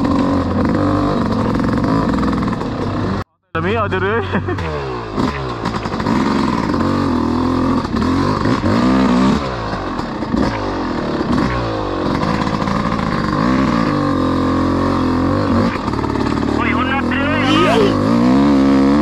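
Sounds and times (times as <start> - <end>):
dirt bike engine revving: 0.0 - 3.2, 4.3 - 19.0.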